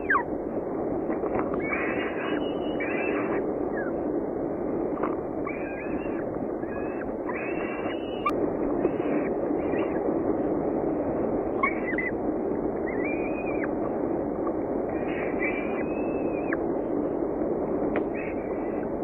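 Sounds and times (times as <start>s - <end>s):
falcon chicks begging calls: 0.0s - 0.3s, 1.6s - 4.0s, 5.4s - 10.0s, 11.5s - 12.2s, 12.8s - 16.6s.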